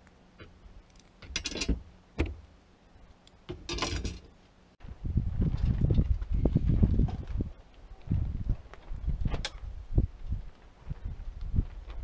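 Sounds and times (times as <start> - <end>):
metal hardware clicks and knocks: 0.9 - 2.4, 3.5 - 4.3.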